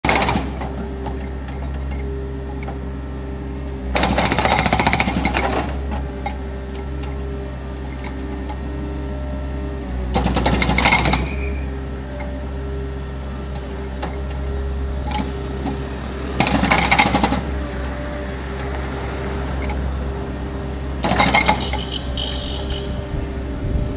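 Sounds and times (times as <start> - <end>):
hydraulic breaker hammering pavement: 0.0 - 1.8, 3.9 - 7.1, 10.1 - 11.6, 13.9 - 17.8, 21.0 - 22.9
loader engine running: 0.0 - 23.9.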